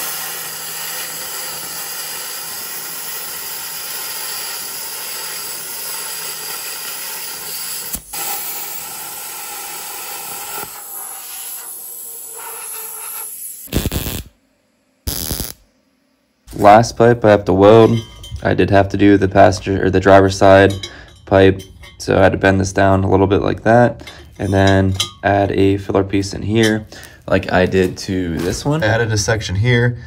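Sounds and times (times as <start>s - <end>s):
welder arc crackling hiss: 0.0s - 14.4s, 15.0s - 15.7s.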